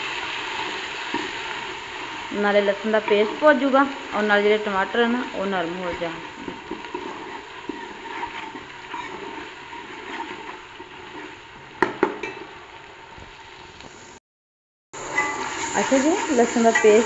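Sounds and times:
food sizzling in a pot: 0.0 - 14.2, 15.0 - 17.0
metal ladle stirring: 6.2 - 11.4.

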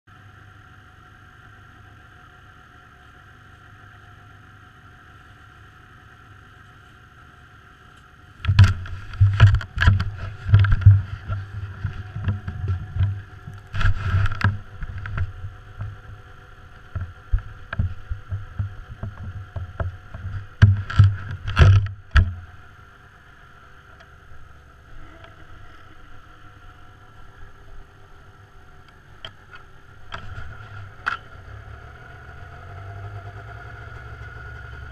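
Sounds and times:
snowmobile engine idling: 0.1 - 34.9
camera handling knocks: 8.4 - 13.2.

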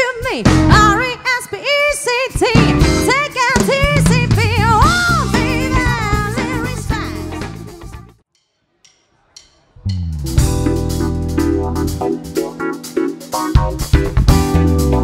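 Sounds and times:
live soul-funk band: 0.4 - 1.2, 2.3 - 8.1, 9.9 - 15.0.

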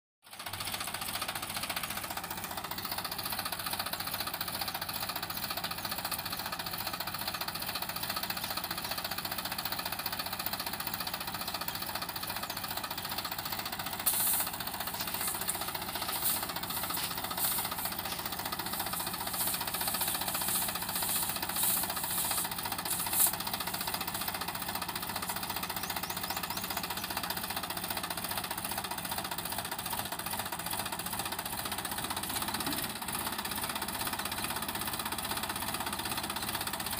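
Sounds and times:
tractor diesel engine under load: 0.2 - 36.9
short bursts of noise: 14.0 - 24.3.

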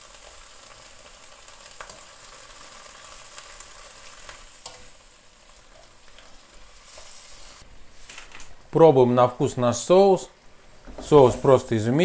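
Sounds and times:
food sizzling in a frying pan: 0.0 - 8.3.

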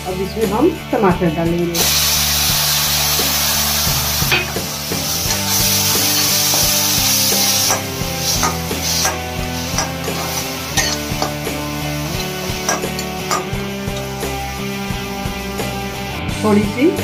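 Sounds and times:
puree sizzling in hot oil: 1.7 - 16.2
metal spatula scraping a pan: 4.1 - 14.7.

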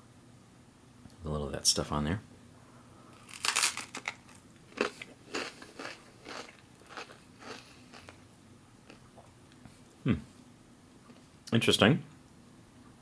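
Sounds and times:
crispbread crunching: 3.2 - 8.2
chewing with crunches: 3.3 - 9.3.

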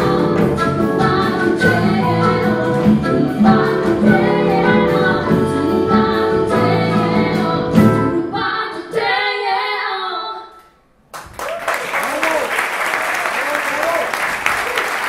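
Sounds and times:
jazz fusion band playing: 0.0 - 8.3
women singing: 0.0 - 10.6.

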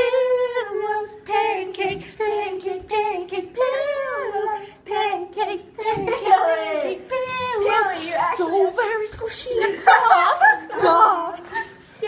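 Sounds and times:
girls singing a cappella: 0.0 - 12.0.

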